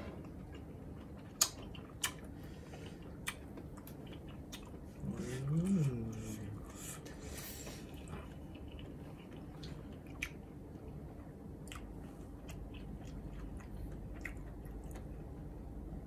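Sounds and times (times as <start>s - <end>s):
steady low hum: 0.0s - 16.0s
wet mouth clicks and smacks: 1.4s - 2.2s.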